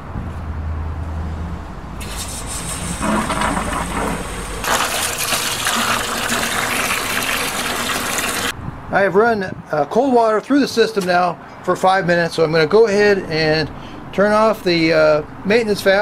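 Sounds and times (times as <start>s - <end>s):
water from hose splashing into bucket: 2.0s - 8.5s.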